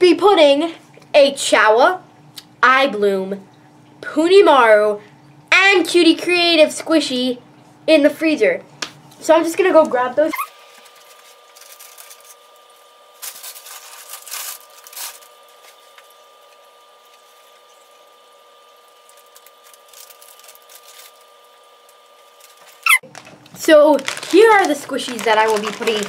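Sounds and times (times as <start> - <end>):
plastic packaging rustling: 10.6 - 16.2, 18.9 - 26.0.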